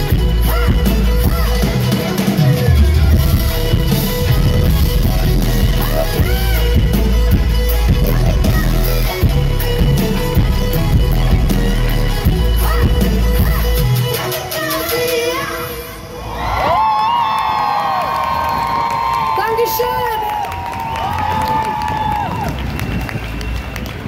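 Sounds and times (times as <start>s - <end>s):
live pop song with woman singing: 0.0s - 16.0s.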